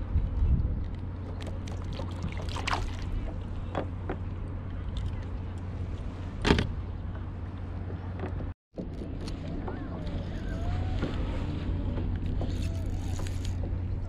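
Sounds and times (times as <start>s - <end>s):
steady low rumble: 0.0s - 14.0s
small water splashes: 1.4s - 3.6s.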